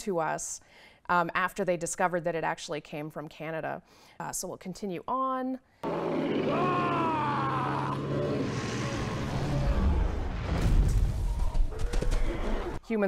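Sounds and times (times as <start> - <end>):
deep rumbling: 5.8 - 12.8.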